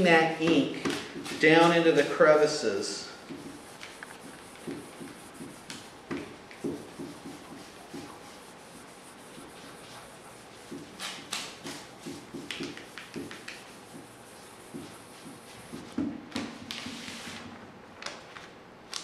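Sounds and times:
cloth scrubbing on plastic plate: 3.2 - 16.0.

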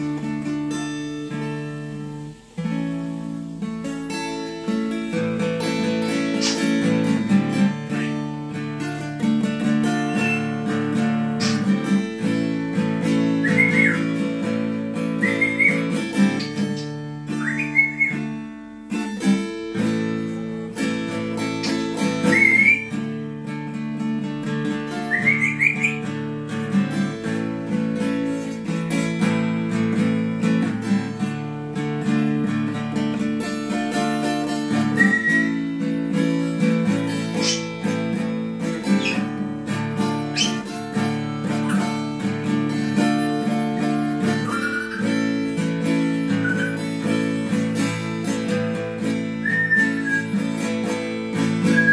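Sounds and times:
acoustic guitar instrumental: 0.0 - 51.9
short rising whistles: 13.4 - 14.2, 15.2 - 18.3, 21.6 - 23.0, 25.0 - 26.1, 34.8 - 35.6, 44.3 - 45.3, 46.3 - 46.9, 49.4 - 50.4.

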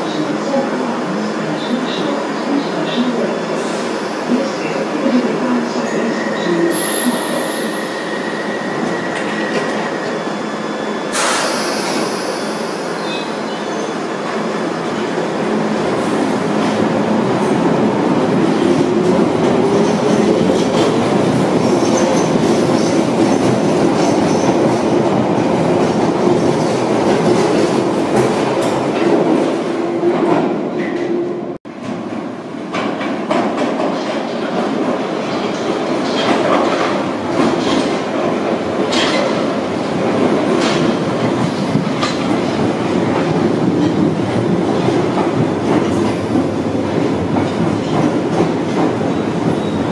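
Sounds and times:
sharp hiss: 11.1 - 12.9
train wheel noise and rattle: 31.7 - 49.9.

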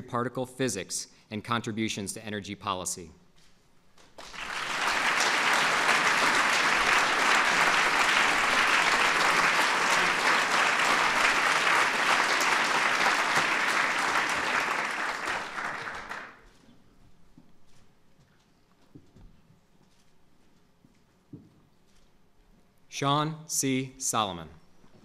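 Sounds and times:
audience applauding: 4.1 - 16.4.

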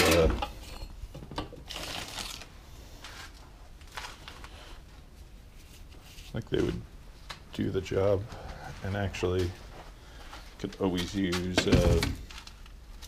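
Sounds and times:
garden tools rustling and clattering: 9.3 - 13.0.

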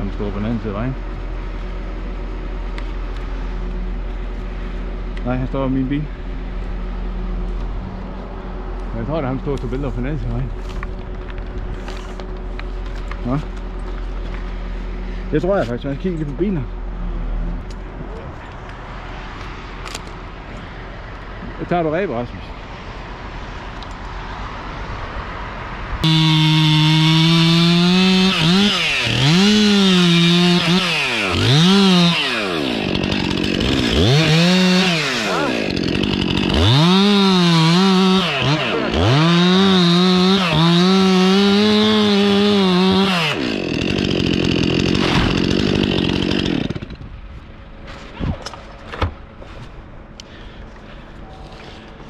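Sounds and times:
chainsaw cutting wood: 26.0 - 47.1.

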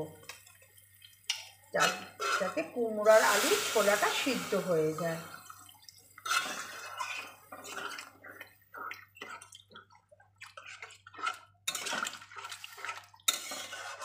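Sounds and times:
metal spatula scraping pan: 1.8 - 4.6, 6.2 - 9.4, 10.5 - 14.0
wet sloshing of curry: 5.5 - 14.0.

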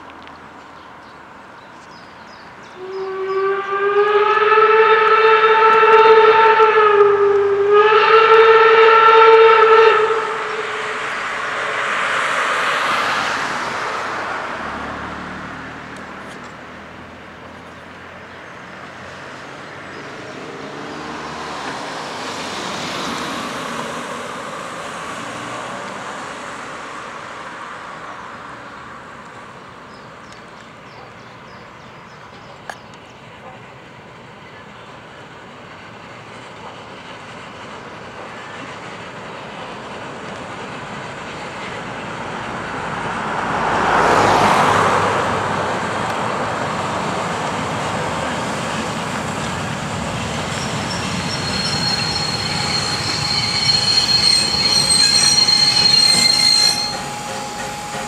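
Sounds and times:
road traffic passing: 0.0 - 58.0
train passing: 0.0 - 58.0
steam locomotive whistle: 2.8 - 13.2, 50.5 - 58.0.

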